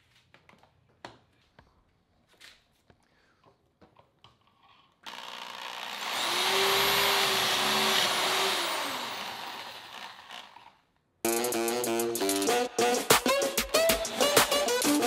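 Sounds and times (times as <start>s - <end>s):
electric drill boring wood: 5.1s - 10.8s.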